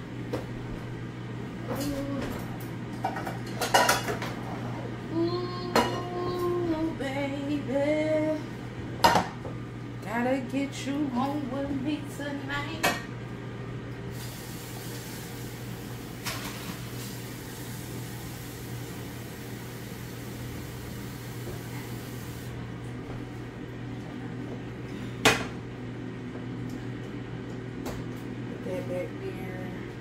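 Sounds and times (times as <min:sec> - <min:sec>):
appliance hum: 0:00.0 - 0:30.0
hiss: 0:14.1 - 0:15.7.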